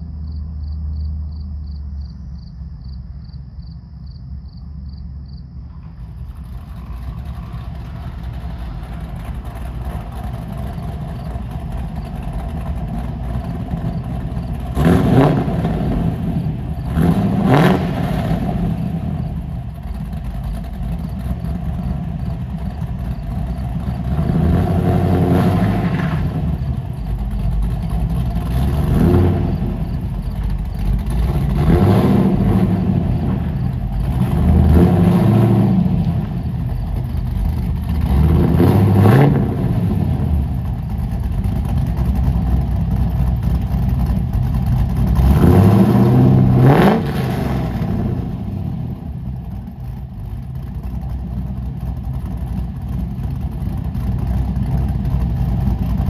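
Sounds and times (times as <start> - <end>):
car engine idling and revving: 0.0 - 56.0.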